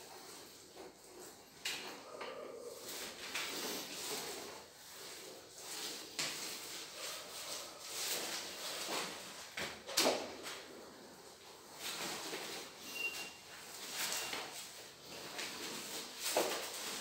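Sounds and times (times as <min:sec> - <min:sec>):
roller scraping: 0:00.0 - 0:09.6
roller sliding over wet floor: 0:02.7 - 0:09.5.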